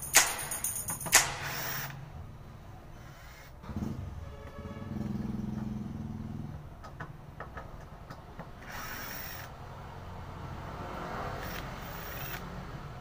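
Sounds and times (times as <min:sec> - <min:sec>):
sharp drill clicks: 0:00.1 - 0:02.0, 0:08.6 - 0:09.6, 0:11.4 - 0:12.5
cordless drill whining: 0:08.6 - 0:09.5, 0:11.4 - 0:12.5.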